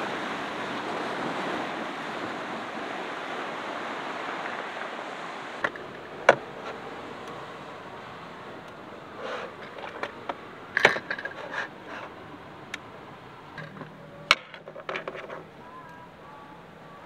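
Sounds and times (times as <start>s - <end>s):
steady background hiss: 0.0s - 17.0s
light rubbing and scraping: 5.6s - 7.0s, 9.1s - 12.3s, 13.5s - 16.1s
objects clicking and knocking: 9.6s - 11.7s, 13.6s - 15.5s.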